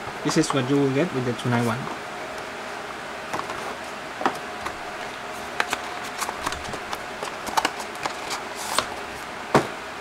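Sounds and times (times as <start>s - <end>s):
faint steady hum: 0.0s - 10.0s
packaging rustle: 5.3s - 8.9s
packaging clicks and taps: 5.6s - 8.9s.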